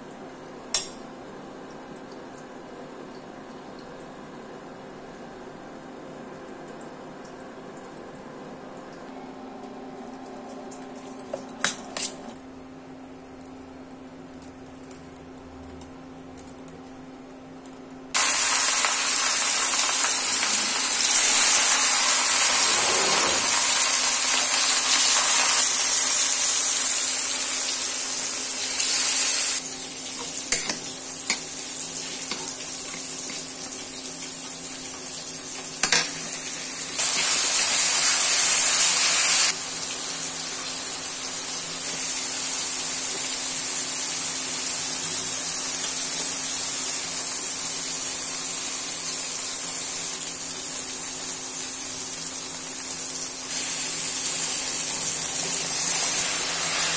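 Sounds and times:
fish sizzling in hot oil: 18.2 - 56.9.

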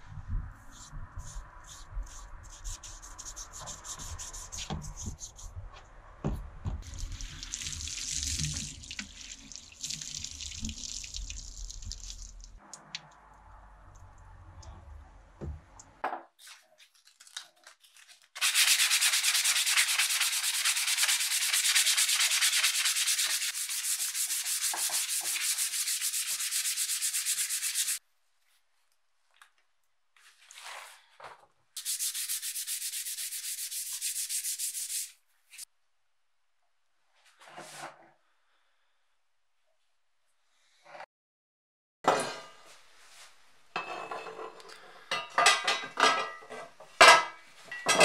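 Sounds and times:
sandpaper sanding steel rod: 0.7 - 5.5, 18.4 - 28.0, 31.8 - 35.6.

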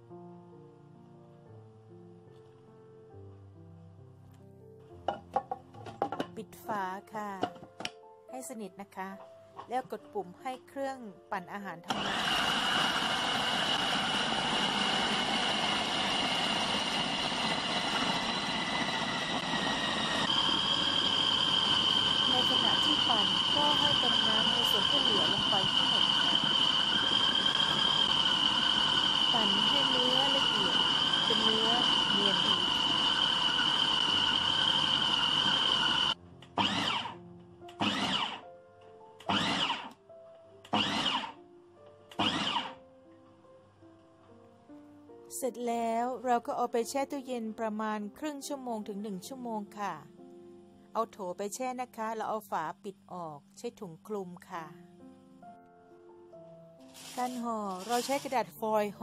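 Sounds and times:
food processor whining: 11.9 - 38.4, 39.2 - 40.0, 40.7 - 41.4, 42.1 - 42.8, 57.0 - 58.4.

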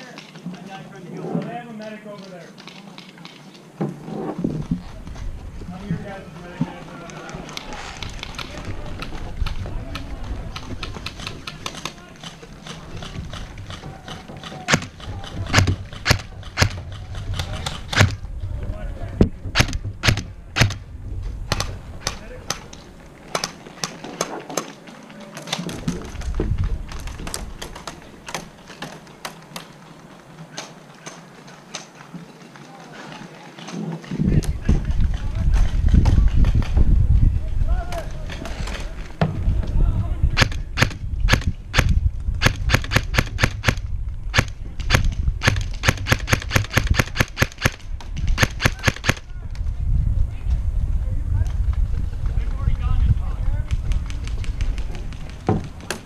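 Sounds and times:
rumble of movement near microphone: 3.8 - 24.6, 25.7 - 29.1, 33.8 - 56.0
airsoft guns firing: 10.5 - 18.2, 19.5 - 20.9, 40.4 - 49.2
airsoft rifle firing single shots: 40.4 - 47.8.

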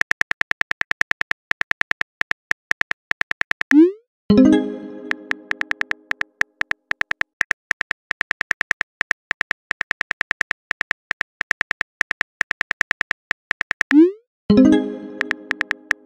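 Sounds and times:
phone keyboard key clicks: 5.5 - 13.9.

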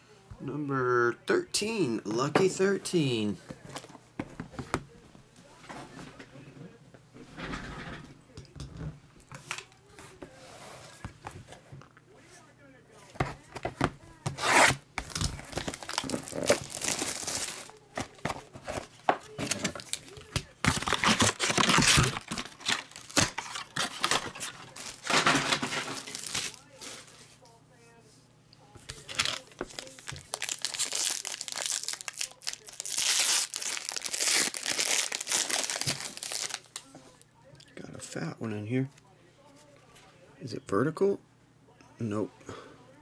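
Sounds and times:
plastic shrink-wrap ripping: 14.4 - 18.3, 19.4 - 27.0, 28.9 - 36.8
plastic film crinkling: 14.4 - 27.2, 28.8 - 37.2.

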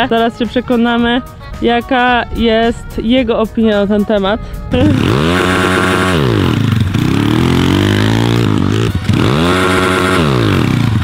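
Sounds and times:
motorbike engine revving: 4.7 - 11.0.

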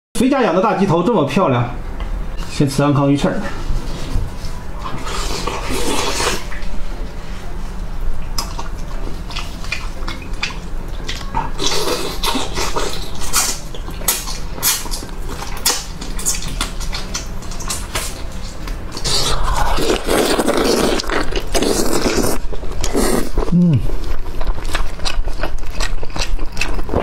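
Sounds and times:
slurping meat off bone: 4.9 - 6.5, 19.0 - 24.0
chewing clicks: 24.0 - 27.0.

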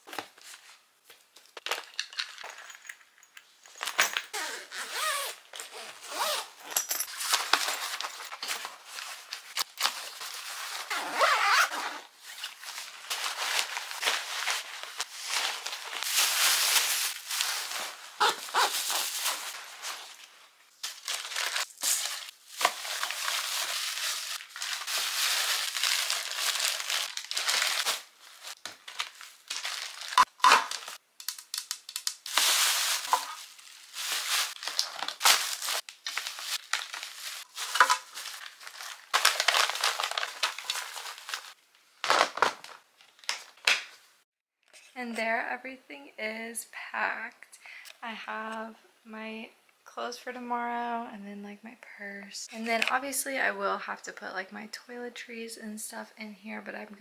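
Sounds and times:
clothes and bags rustling: 2.5 - 31.0, 32.3 - 41.6.

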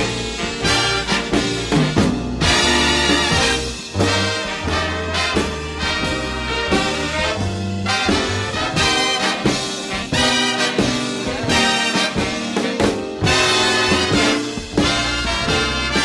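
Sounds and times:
swing band brass music: 0.0 - 16.0.

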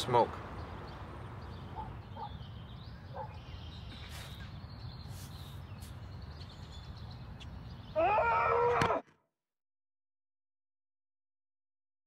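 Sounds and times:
loud pitched cry: 8.0 - 9.0.

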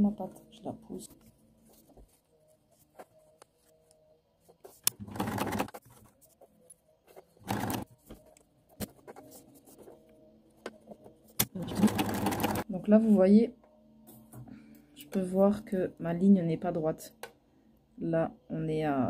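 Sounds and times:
sewing machine stitching: 4.9 - 5.8, 7.4 - 7.9, 11.4 - 12.6.

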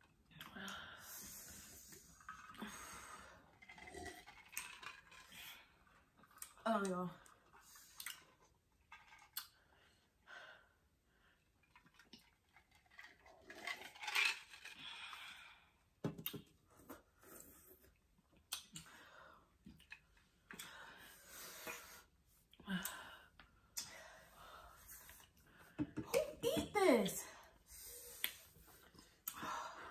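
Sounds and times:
hard breathing: 26.8 - 29.9.

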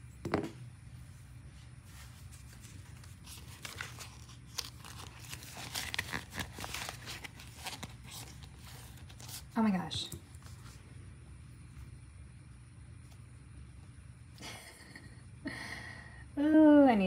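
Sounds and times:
paper banknotes rustling: 1.8 - 9.8
plastic pocket crinkling: 2.9 - 9.5.

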